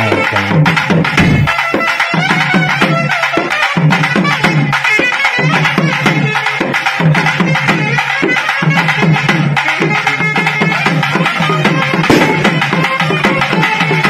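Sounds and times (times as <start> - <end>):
fast dense drumming: 0.0 - 1.9, 11.9 - 13.4.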